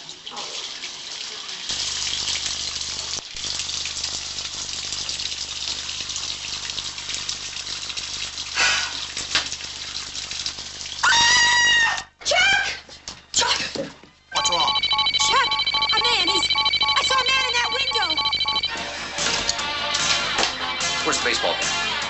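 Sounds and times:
water gushing into bathtub: 0.0 - 11.5
woman screaming: 11.0 - 12.8.

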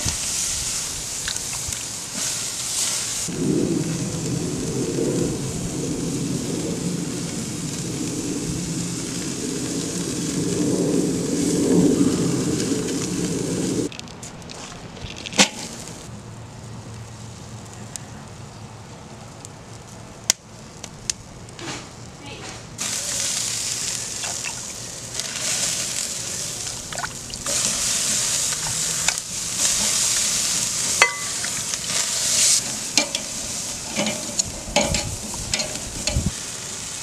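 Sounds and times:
meat sizzling on a grill: 0.0 - 13.9, 15.5 - 22.1, 22.8 - 37.0
loud steady low rumble: 3.3 - 13.9, 26.0 - 36.4.

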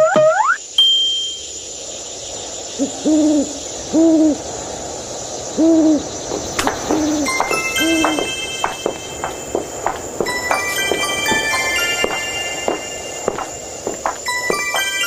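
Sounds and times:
night ambience hiss: 0.4 - 15.0
owl hooting: 2.8 - 4.4, 5.6 - 8.3.

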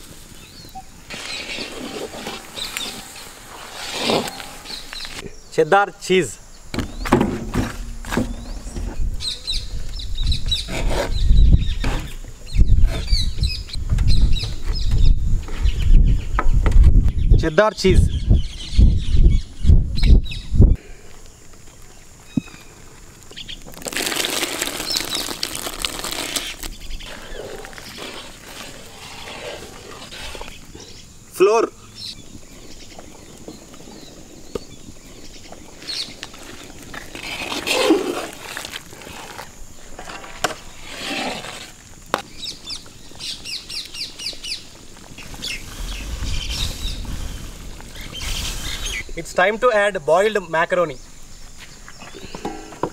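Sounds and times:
birds chirping: 0.3 - 7.2, 8.1 - 23.7, 26.4 - 37.2, 42.1 - 52.9
metal ladle stirring and scraping: 1.1 - 5.0.

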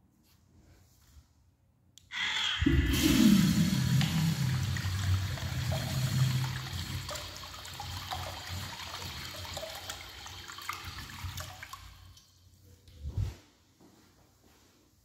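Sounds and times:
urinal flushing: 2.1 - 12.2.

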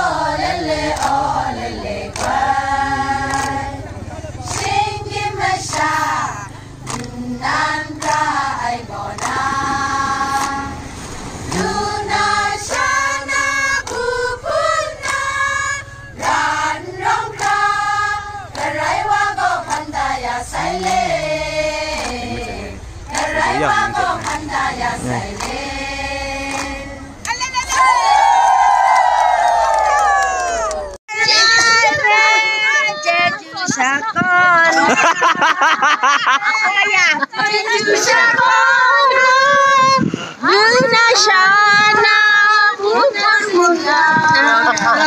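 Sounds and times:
women singing in unison: 0.0 - 28.0, 31.1 - 35.2, 36.4 - 45.0
hand claps: 2.1 - 2.4, 3.3 - 3.6, 4.5 - 4.7, 6.9 - 7.1, 9.2 - 9.4, 21.9 - 22.2, 23.1 - 24.4, 25.3 - 25.6, 26.5 - 27.4.

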